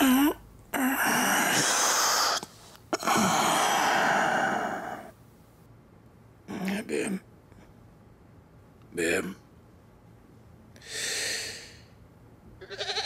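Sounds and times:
person crying out: 0.0 - 2.4, 3.0 - 5.1
person exhaling breathily: 0.0 - 5.1, 10.8 - 11.9.

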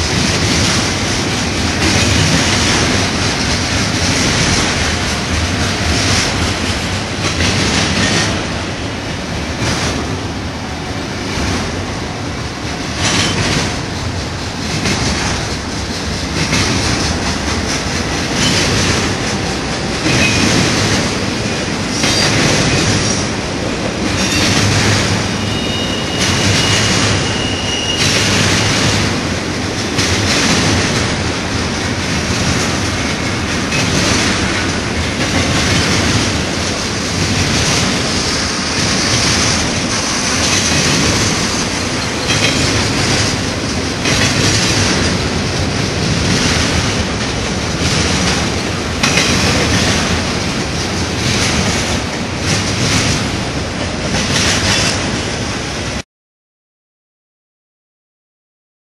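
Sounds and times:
train wheels rumbling on rail: 0.0 - 56.0
wheel squeal: 25.4 - 28.3.

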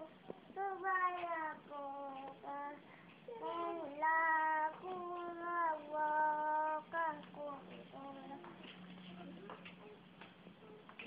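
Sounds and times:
child chanting in sing-song melody: 0.0 - 8.8.

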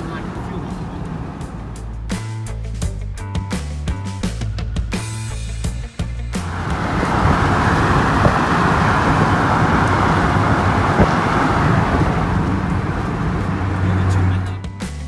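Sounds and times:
road and wind noise: 0.0 - 2.7, 6.2 - 15.0.

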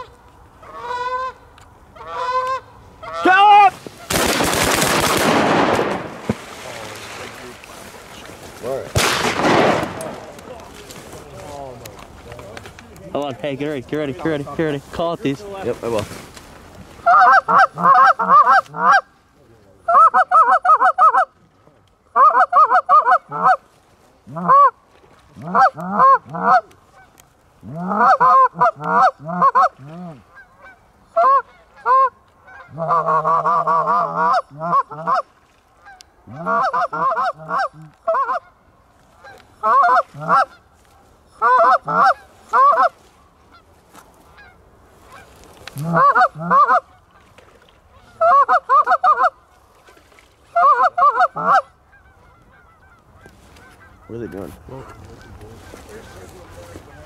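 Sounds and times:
goose calls honking: 0.0 - 1.4, 2.0 - 4.2, 17.0 - 19.1, 22.1 - 23.6, 24.2 - 24.8, 25.4 - 38.6, 39.2 - 40.7, 41.4 - 43.7, 44.3 - 47.3, 47.9 - 49.6, 50.5 - 57.0.

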